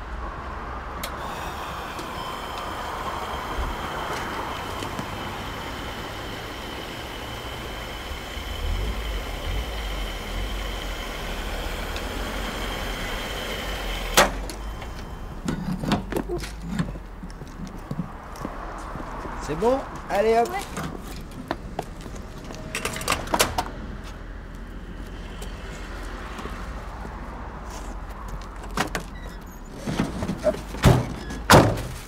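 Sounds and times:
fuel pump whine: 0:00.9 - 0:16.2
fuel flowing into tank: 0:01.0 - 0:14.9.

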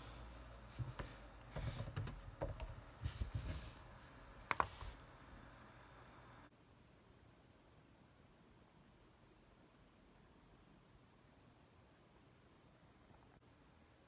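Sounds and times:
laptop keyboard typing: 0:01.4 - 0:02.9, 0:04.5 - 0:04.8.

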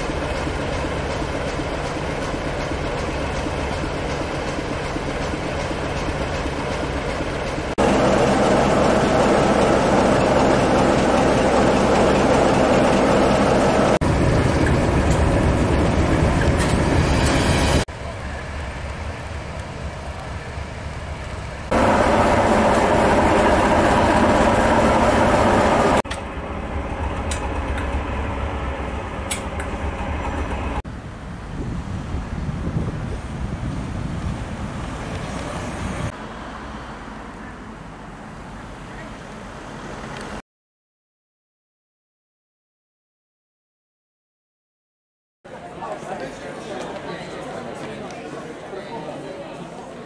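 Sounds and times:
diesel locomotive engines running: 0:00.0 - 0:40.4.

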